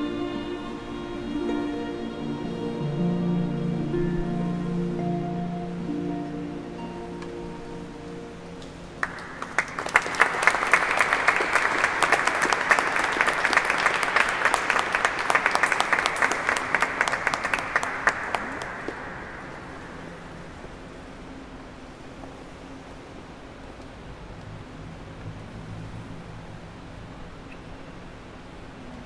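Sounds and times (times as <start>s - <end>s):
chamber ensemble playing: 0.0s - 9.0s
audience applauding: 9.0s - 20.0s.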